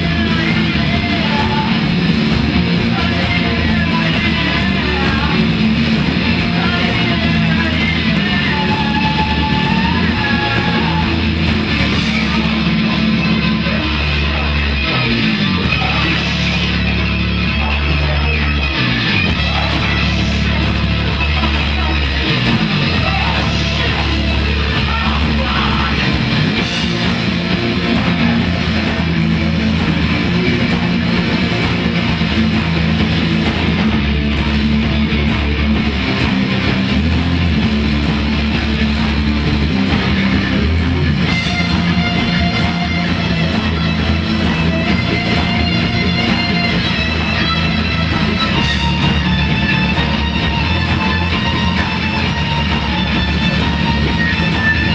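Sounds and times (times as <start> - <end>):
live rock band playing: 0.0 - 54.9
held high guitar notes: 15.5 - 54.9.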